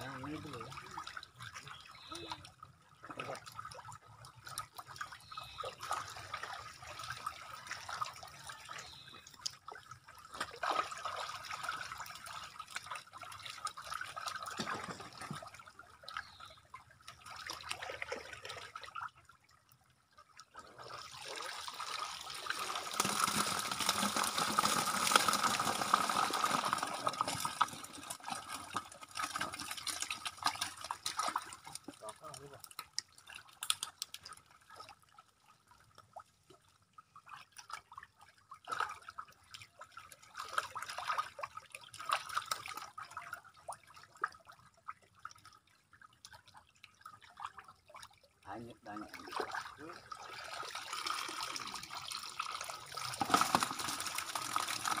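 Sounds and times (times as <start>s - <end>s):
water splashing and sloshing: 0.0s - 55.0s.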